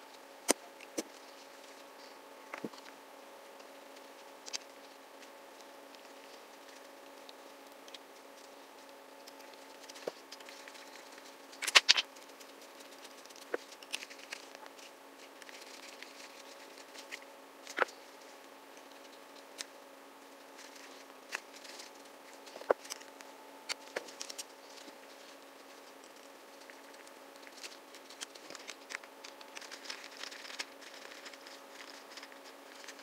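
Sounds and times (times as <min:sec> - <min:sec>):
steady hum: 0:00.0 - 0:33.0.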